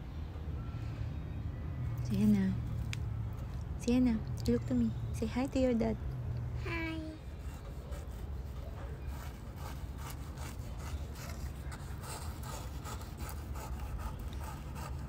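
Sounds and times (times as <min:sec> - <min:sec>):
rubbing and scratching strokes: 0:07.2 - 0:15.0.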